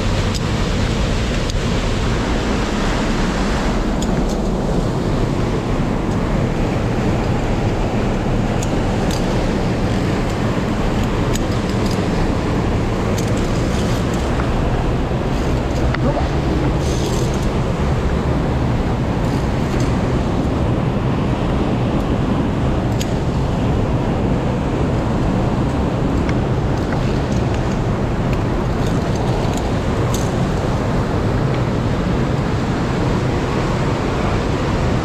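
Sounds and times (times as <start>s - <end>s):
stream rushing over rocks: 0.0s - 35.0s.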